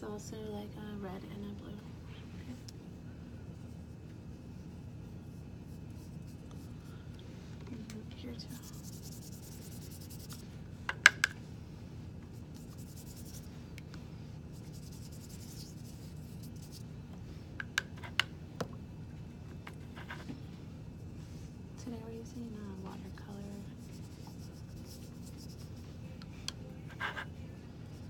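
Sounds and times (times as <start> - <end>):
paintbrush swishing on paper: 8.5 - 10.5, 12.3 - 16.9, 22.6 - 26.0.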